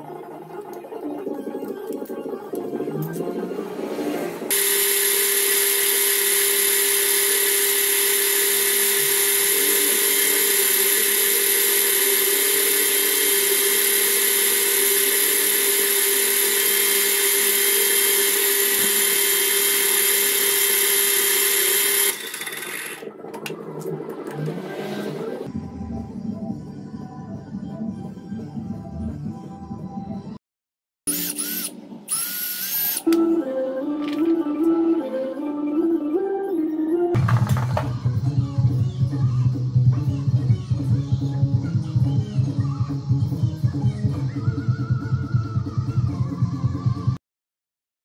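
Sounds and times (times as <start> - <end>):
metal lathe whining: 4.5 - 23.1.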